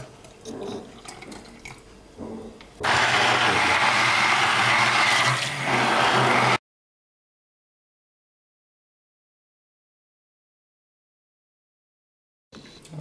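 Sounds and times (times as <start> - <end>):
stick blender motor whine: 2.8 - 6.6.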